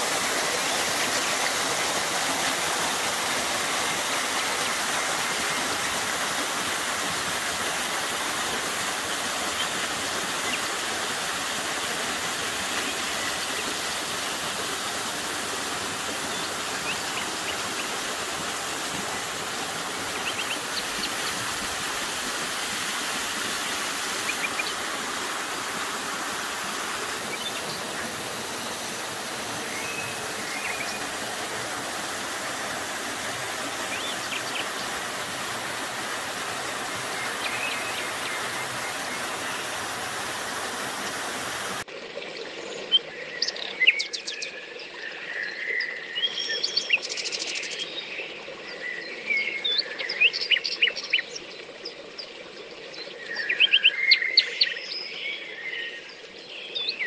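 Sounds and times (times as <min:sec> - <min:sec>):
stream and waterfall rushing: 0:00.0 - 0:42.2.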